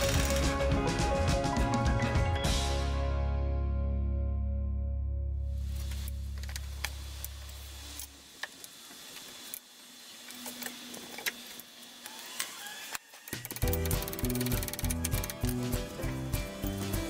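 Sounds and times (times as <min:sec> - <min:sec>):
hand tools clicking on metal: 0:13.3 - 0:15.7.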